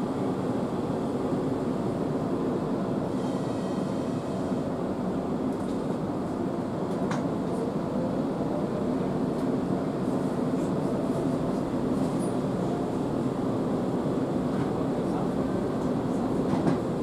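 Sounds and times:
train rumble and hum: 0.0 - 17.0.

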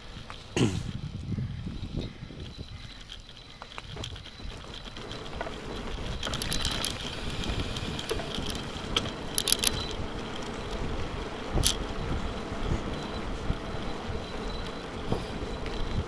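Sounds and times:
tyre and wind noise: 0.0 - 16.0
rattling clicks of camera mount: 8.0 - 10.0, 11.6 - 11.8.

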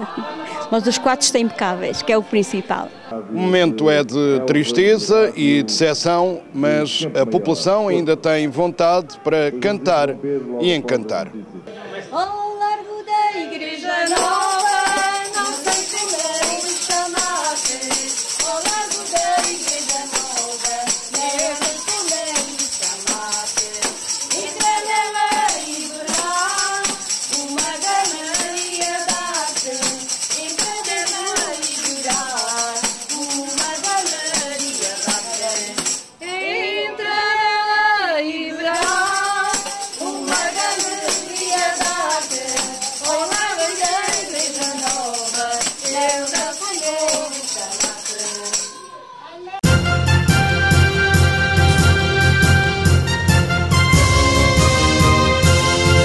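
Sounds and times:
women singing folk song: 0.0 - 3.1, 12.1 - 48.9
tambourines shaken and struck: 14.1 - 36.4, 38.8 - 48.9, 52.9 - 56.0.

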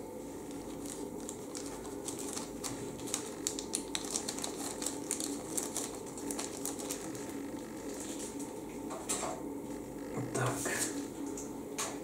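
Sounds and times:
plastic bag crinkling: 0.4 - 8.4.

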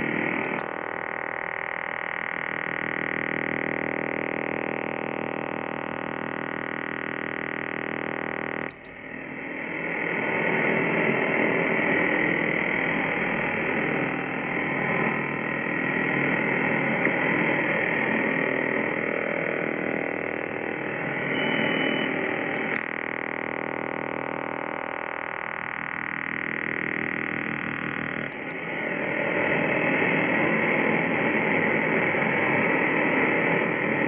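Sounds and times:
harsh radar buzz: 0.0 - 31.8
switch click: 8.7 - 9.0.

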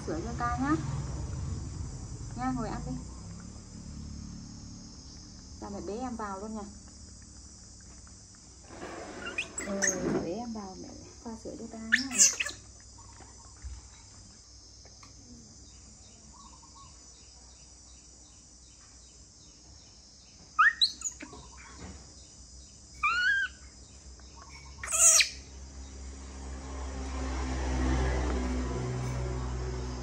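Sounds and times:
high chirping calls: 11.8 - 13.6, 20.6 - 21.8, 22.9 - 25.6.

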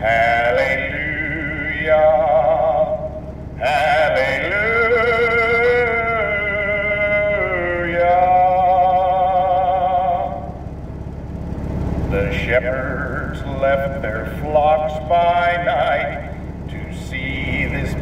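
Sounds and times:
man singing with vibrato: 0.0 - 10.7, 12.0 - 18.0
low rumble: 0.0 - 18.0.

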